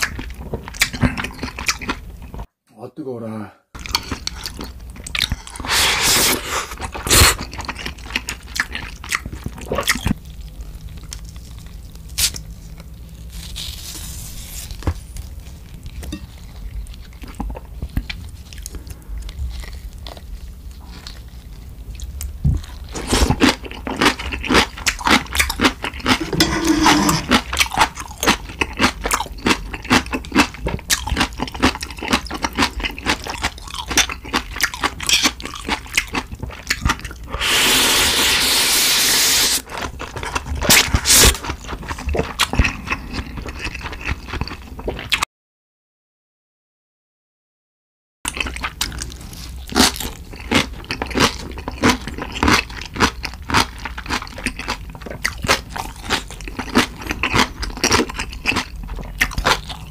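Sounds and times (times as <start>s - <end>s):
wet crunching and chewing: 0.0s - 2.5s, 3.8s - 37.4s, 39.6s - 45.2s, 48.3s - 59.9s
slurping broth and noodles: 5.2s - 7.5s, 26.1s - 27.5s, 37.3s - 39.7s, 40.7s - 41.4s.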